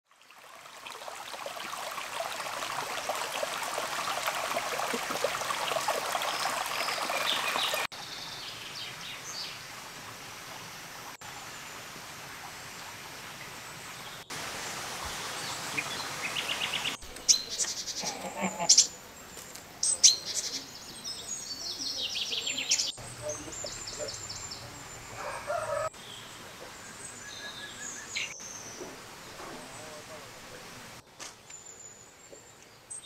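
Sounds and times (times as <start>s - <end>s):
stream water running: 0.0s - 33.0s
small birds chirping: 5.1s - 9.6s, 15.2s - 30.8s.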